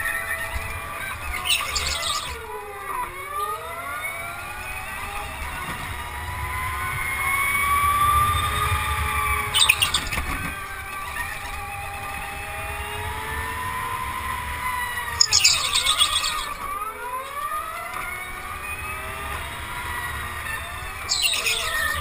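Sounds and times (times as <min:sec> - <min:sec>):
go-kart motor whine: 0:00.0 - 0:22.0
tyre squeal: 0:01.4 - 0:02.4, 0:15.2 - 0:16.6, 0:21.1 - 0:22.0.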